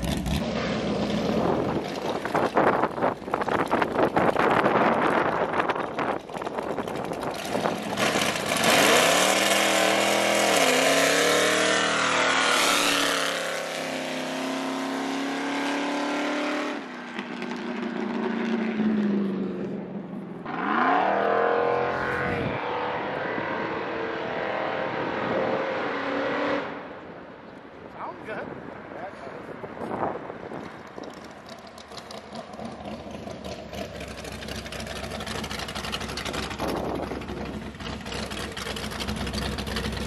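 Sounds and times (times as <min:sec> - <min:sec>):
pickup engine revving hard: 0:08.0 - 0:16.8.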